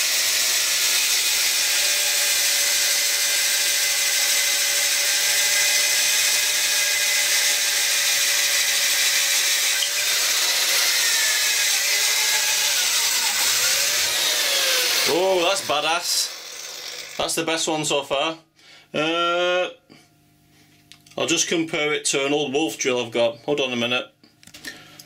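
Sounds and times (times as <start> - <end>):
electric drill boring into wood: 0.0 - 17.3.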